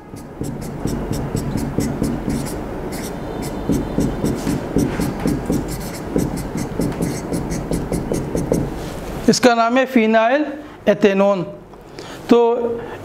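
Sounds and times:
pen tapping and scratching on glass: 0.0s - 8.8s.

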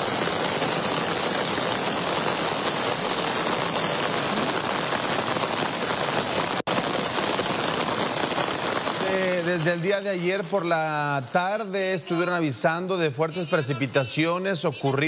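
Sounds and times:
heavy rain and rushing floodwater: 0.0s - 15.0s.

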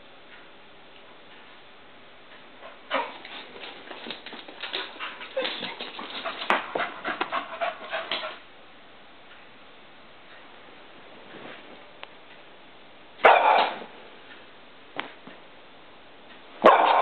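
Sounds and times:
dog panting: 2.6s - 8.5s.

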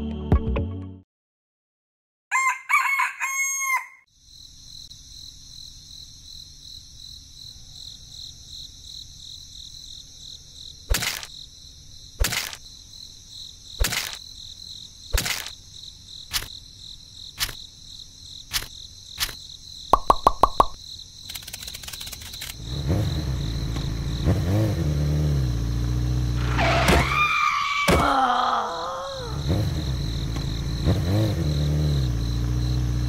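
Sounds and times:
rooster crowing: 2.3s - 4.1s
crickets chirping: 2.4s - 33.0s.

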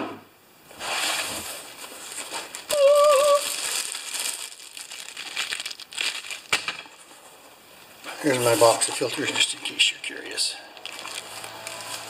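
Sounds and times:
plastic wrapping crinkling: 1.1s - 7.2s, 10.7s - 12.0s.

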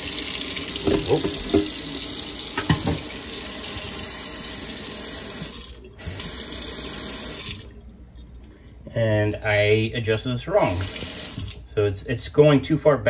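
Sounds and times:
water running into steel sink: 0.0s - 7.8s, 10.6s - 11.6s.

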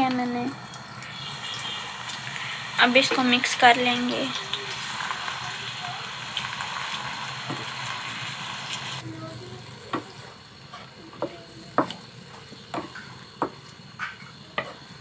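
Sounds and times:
chicken sizzling in oil: 0.0s - 15.0s
wooden spatula knocking pan: 11.2s - 14.8s.

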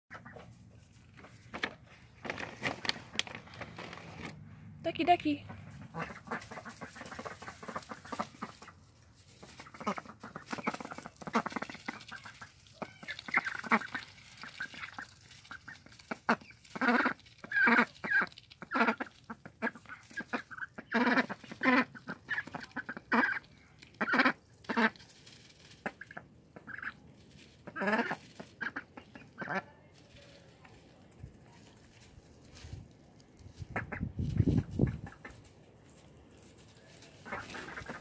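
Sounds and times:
rustling in straw: 0.1s - 4.4s, 5.6s - 38.0s
ducklings calling: 5.4s - 25.1s, 25.8s - 29.7s, 33.6s - 35.5s, 37.0s - 38.0s.

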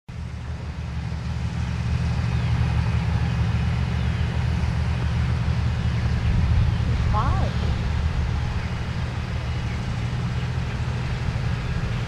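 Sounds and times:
low rumble: 4.9s - 12.0s.

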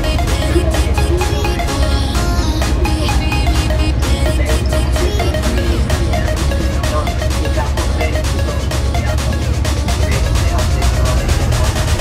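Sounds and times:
electronic music with heavy bass: 0.0s - 12.0s.

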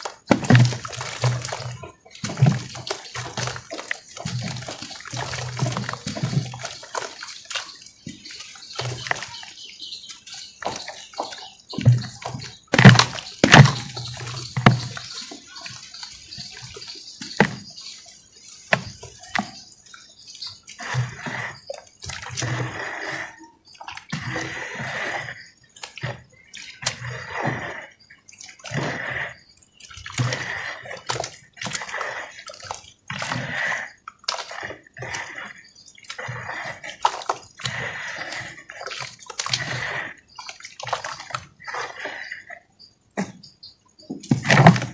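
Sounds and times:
dirt plopping into water: 0.0s - 9.4s, 10.6s - 17.7s
hands sloshing through mud: 0.0s - 42.6s, 44.1s - 44.9s.

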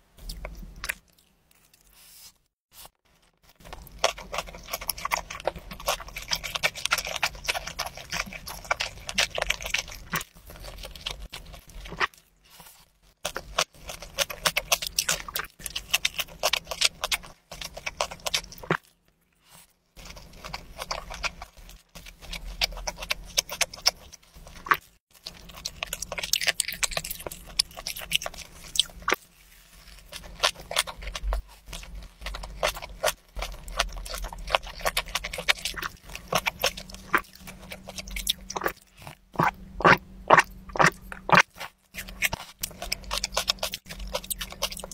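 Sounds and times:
chewing and wet mouth smacking: 3.5s - 44.9s.

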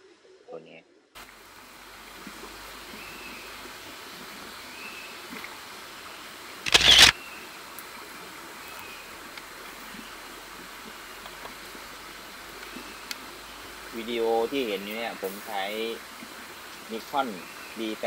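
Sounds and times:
steady background hiss: 0.0s - 18.0s
camera shutter burst: 6.6s - 7.2s.

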